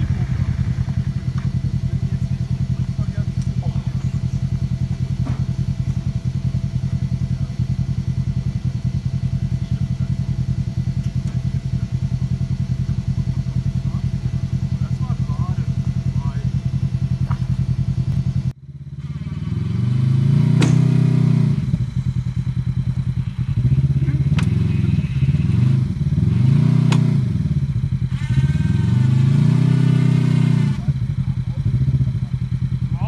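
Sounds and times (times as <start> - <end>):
vehicle engine revving: 0.0 - 33.0
sharp knocks: 20.6 - 21.0.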